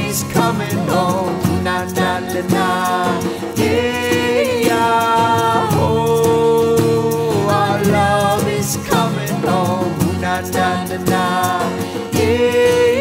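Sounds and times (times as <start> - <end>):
acoustic guitar: 0.0 - 13.0
singers holding long notes: 0.0 - 13.0.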